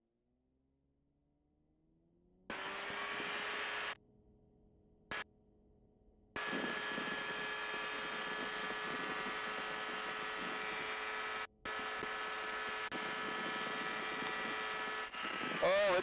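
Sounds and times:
ultralight aircraft engine drone: 0:01.7 - 0:04.0, 0:05.0 - 0:05.3, 0:06.0 - 0:16.0.

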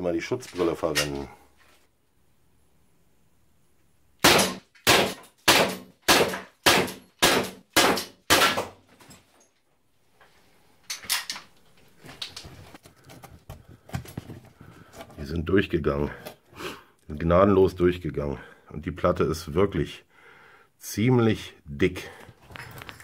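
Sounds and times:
pistol shots echoing: 0:04.2 - 0:08.7
pistol handling clicks and knocks: 0:10.9 - 0:11.6.

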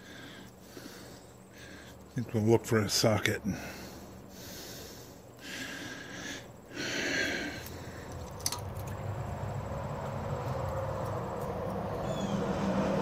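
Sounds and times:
heavy breaths through nose: 0:00.0 - 0:02.2, 0:03.4 - 0:08.4
steady low hum: 0:00.0 - 0:13.0.

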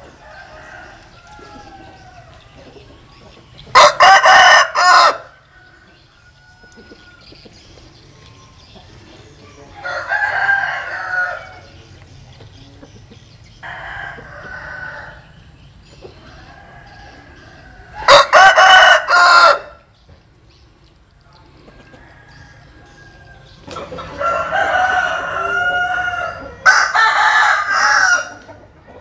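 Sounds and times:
rooster crowing: 0:03.7 - 0:07.2, 0:09.8 - 0:11.7, 0:13.6 - 0:15.3, 0:16.3 - 0:19.8, 0:21.9 - 0:28.5.

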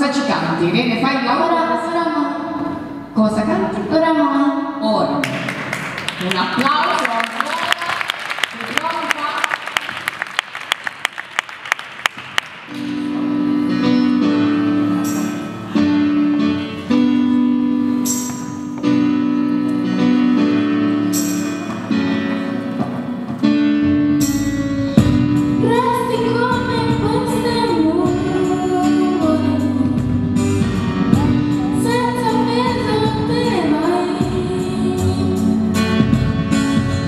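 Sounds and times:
audience clapping: 0:05.2 - 0:13.0
instrumental accompaniment chords: 0:12.5 - 0:37.0
girl singing into microphone: 0:25.4 - 0:30.4, 0:31.1 - 0:36.1.

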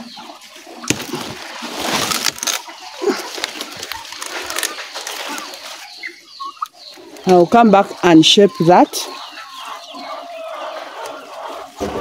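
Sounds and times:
leaves rustling: 0:00.4 - 0:05.9
stalks snapping: 0:00.9 - 0:02.6.

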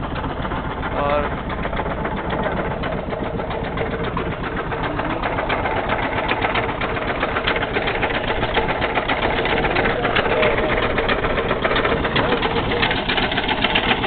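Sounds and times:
boat engine running: 0:00.0 - 0:14.0.

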